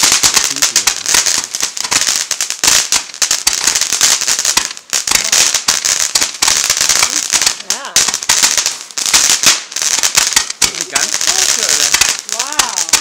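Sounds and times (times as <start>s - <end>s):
firecracker bangs and crackles: 0.0s - 13.0s
fireworks hiss: 0.0s - 13.0s.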